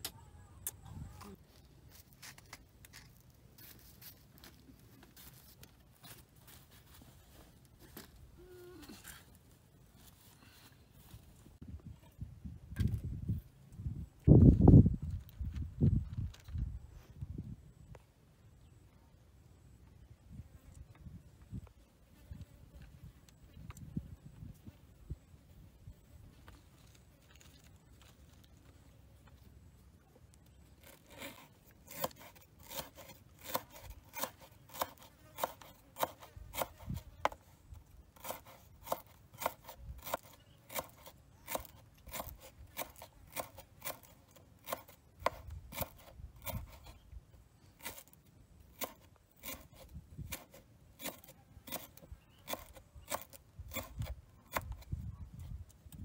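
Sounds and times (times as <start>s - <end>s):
knife chopping on wooden board: 31.9s - 37.4s.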